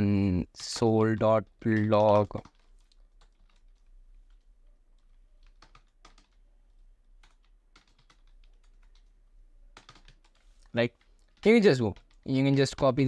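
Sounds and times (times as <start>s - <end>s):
faint keyboard typing: 0.1s - 13.0s.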